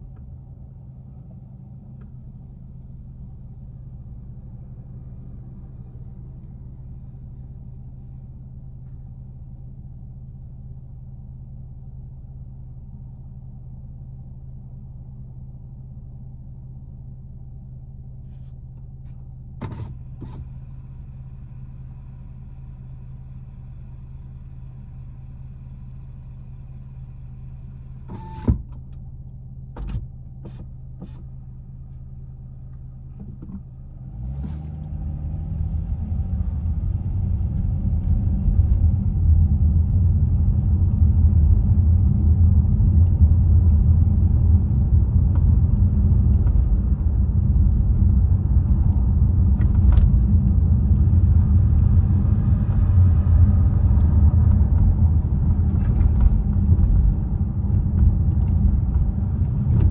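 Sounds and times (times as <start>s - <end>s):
car engine idling: 0.0s - 34.3s
road noise: 29.8s - 59.9s
car pulling away: 32.6s - 59.9s.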